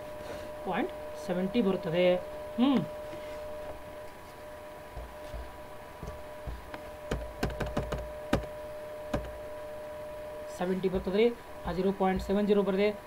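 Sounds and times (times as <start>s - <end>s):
electrical hum: 0.0s - 13.0s
computer clicks and knocks: 7.1s - 8.5s, 9.1s - 9.4s.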